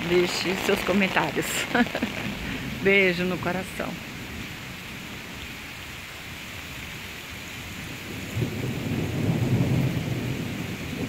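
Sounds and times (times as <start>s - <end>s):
heavy rain falling: 0.0s - 11.0s
low rumble of thunder: 6.9s - 11.0s.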